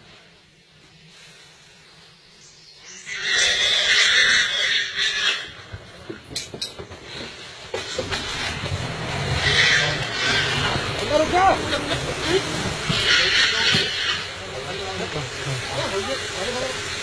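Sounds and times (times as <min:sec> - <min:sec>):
loud harsh animal cry: 0:02.9 - 0:05.7, 0:09.0 - 0:11.7, 0:12.4 - 0:14.4.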